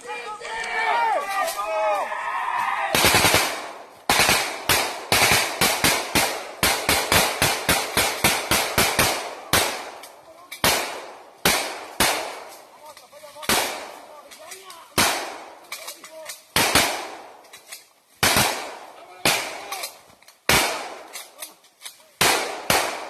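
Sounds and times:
gunshots: 2.9 - 12.6, 13.4 - 14.1, 14.9 - 15.6, 16.5 - 17.4, 18.2 - 19.9, 20.5 - 21.3, 22.2 - 23.0.

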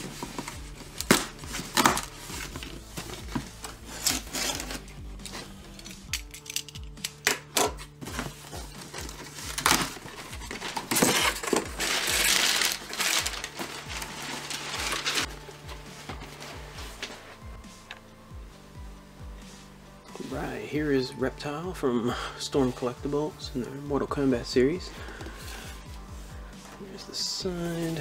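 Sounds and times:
cardboard flaps scraping and rustling: 0.0 - 5.5, 8.0 - 17.4
background music with steady beat: 0.0 - 28.0.

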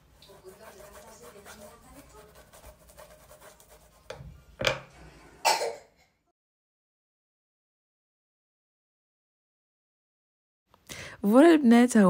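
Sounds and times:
pastry brush rubbing: 0.0 - 4.2.

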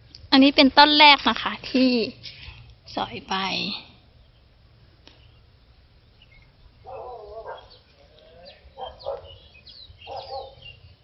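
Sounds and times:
small birds chirping: 0.0 - 11.0
wavering animal call: 6.8 - 10.7.

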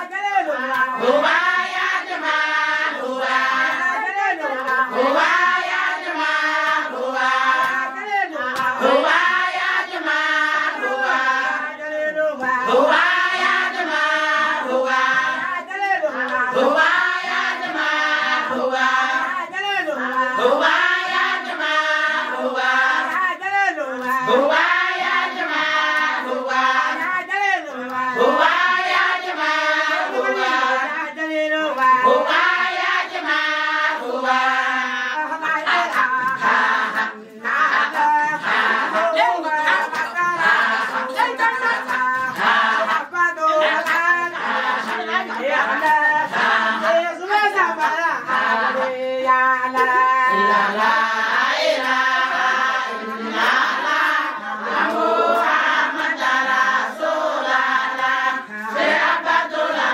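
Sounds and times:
women singing a chant: 0.0 - 59.9
handclapping: 0.4 - 2.5, 3.2 - 10.2, 22.6 - 30.6, 31.6 - 33.4, 35.2 - 56.5.

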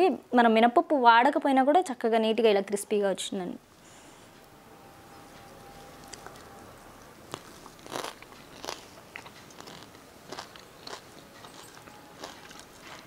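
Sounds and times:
crispy food crunching when chewed: 7.3 - 13.0.

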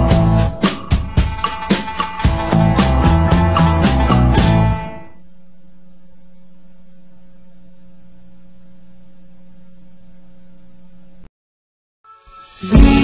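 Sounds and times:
background music: 0.0 - 5.2, 12.1 - 13.0
low electrical hum: 4.5 - 11.3.

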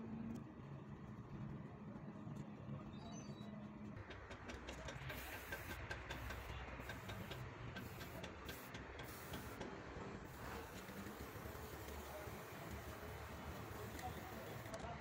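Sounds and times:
spray paint can hissing: 5.0 - 9.6, 10.3 - 14.8.

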